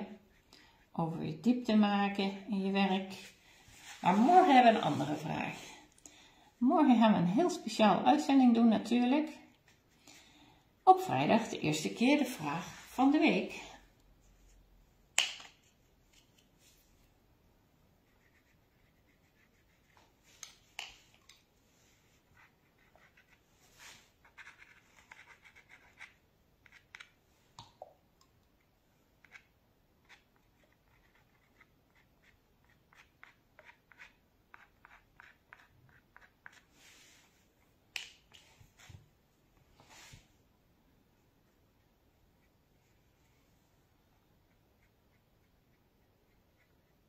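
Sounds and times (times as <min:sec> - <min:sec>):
brush scratching on paper: 0:03.1 - 0:05.8, 0:18.0 - 0:20.4, 0:21.7 - 0:26.8, 0:30.0 - 0:37.4, 0:44.5 - 0:47.0.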